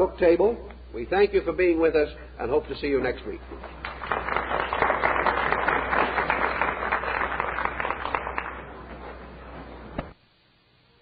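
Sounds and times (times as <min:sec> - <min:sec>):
low steady hum: 0:00.0 - 0:11.0
audience applause: 0:03.6 - 0:09.8.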